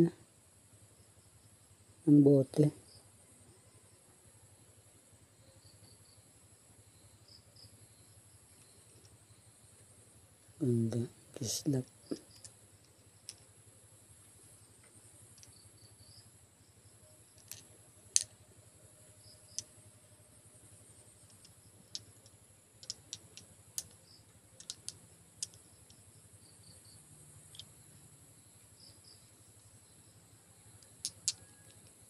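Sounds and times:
glass bottles clicking together: 0:17.4 - 0:17.6, 0:22.8 - 0:23.9, 0:24.6 - 0:25.6, 0:31.0 - 0:31.4.

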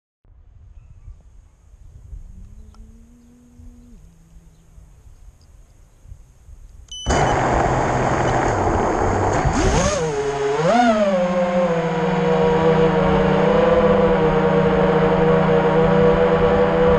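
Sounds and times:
drone motor whine: 0:07.1 - 0:16.9
drone propeller rush: 0:07.1 - 0:16.9.

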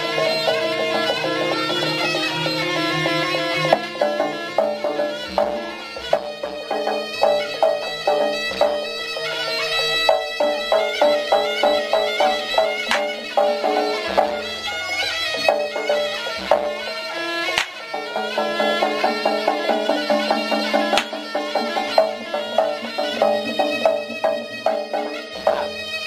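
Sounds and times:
drum strokes: 0:00.0 - 0:26.0
reedy wind pipe melody: 0:00.0 - 0:26.0
sharp crack: 0:12.8 - 0:13.3, 0:17.5 - 0:17.9, 0:20.9 - 0:21.3.

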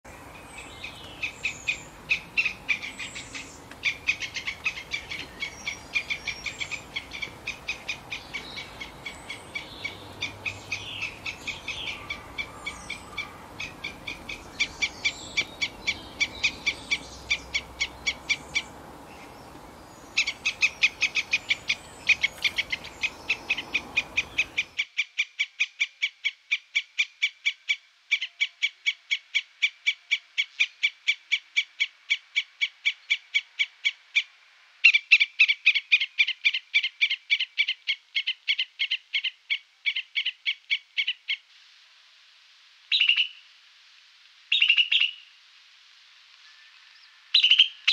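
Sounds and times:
faint background hiss: 0:00.1 - 0:47.9
squirrel chirping: 0:00.8 - 0:18.7, 0:20.2 - 0:24.9, 0:42.9 - 0:43.4, 0:47.4 - 0:47.9.

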